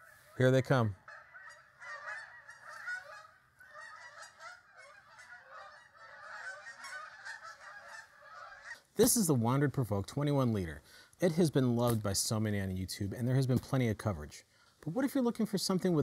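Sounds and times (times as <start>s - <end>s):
geese honking: 0.0s - 10.6s.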